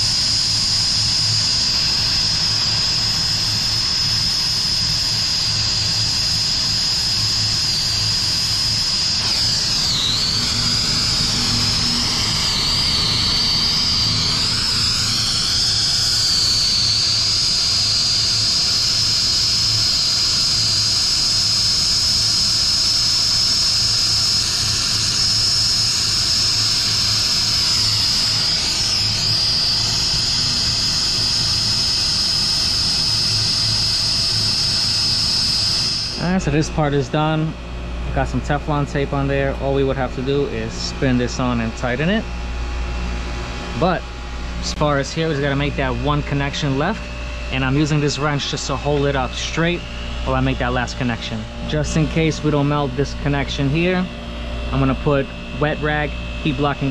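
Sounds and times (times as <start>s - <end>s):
torch flame hissing and whistling: 0.0s - 36.6s.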